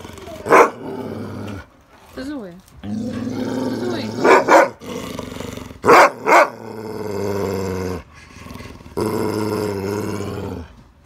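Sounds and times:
dog growling moans: 0.0s - 1.7s, 2.8s - 5.9s, 6.6s - 10.8s
dog calling loudly: 3.9s - 4.8s, 5.8s - 6.6s.

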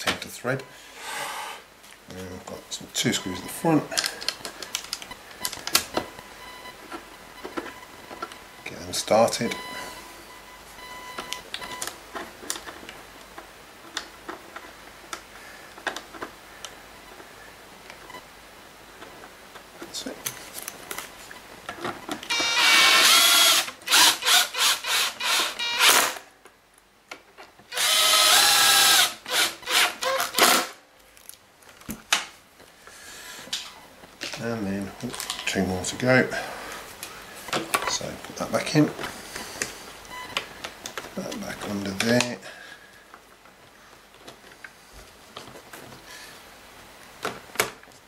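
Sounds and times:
plastic parts clicking into place: 3.9s - 6.0s
cordless drill motor whining: 22.3s - 26.2s, 27.7s - 30.8s.

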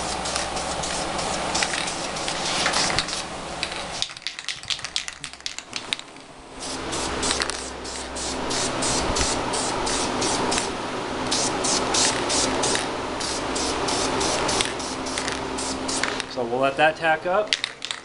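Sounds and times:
aerosol spray can hissing: 0.0s - 5.0s, 6.6s - 10.7s, 11.3s - 16.3s.

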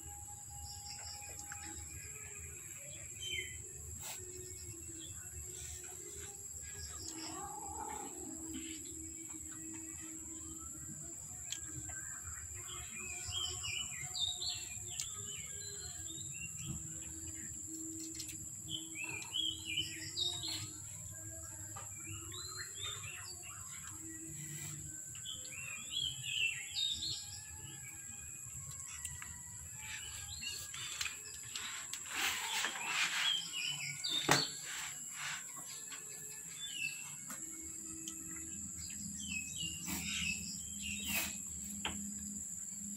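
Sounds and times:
birds chirping: 29.8s - 42.9s.

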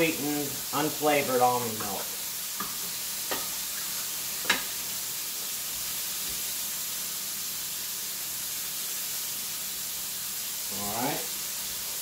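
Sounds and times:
chicken sizzling in a hot pan: 0.0s - 12.0s.

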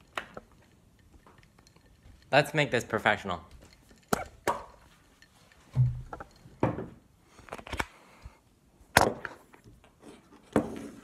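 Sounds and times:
glass knocked on a table: 5.8s - 6.9s.

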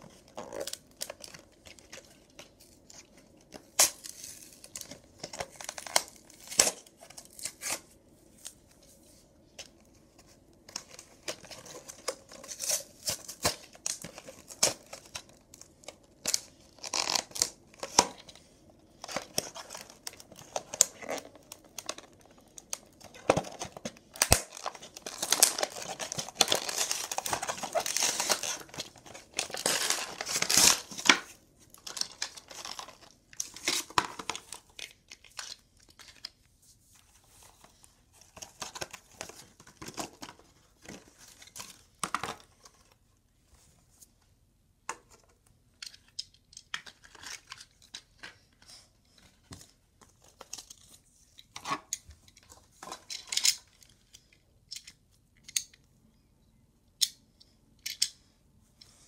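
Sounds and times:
packaging tearing and crinkling: 10.8s - 18.2s, 19.0s - 36.2s.

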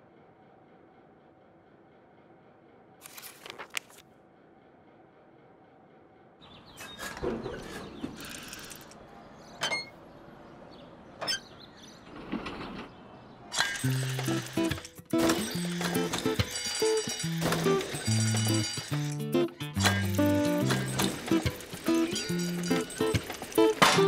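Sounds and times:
wooden tram creaking and rattling: 6.4s - 10.0s, 11.0s - 24.0s.

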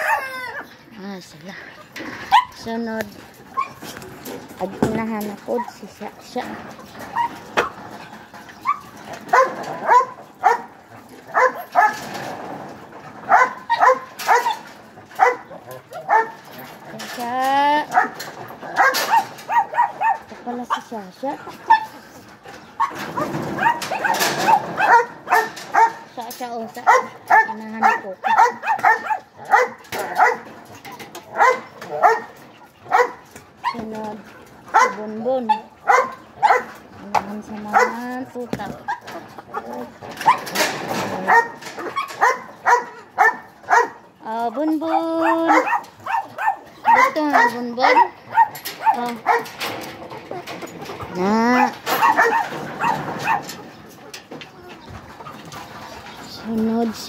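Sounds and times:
small dogs yapping: 0.0s - 0.9s, 3.3s - 4.4s, 6.6s - 12.3s, 13.0s - 17.0s, 17.8s - 26.1s, 26.7s - 37.1s, 37.7s - 38.1s, 38.8s - 56.4s.

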